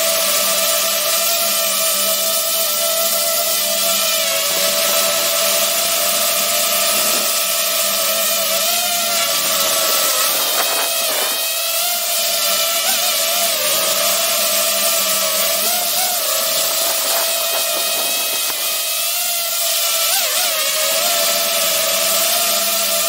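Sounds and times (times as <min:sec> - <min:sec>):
drone propellers whining: 0:14.9 - 0:19.1.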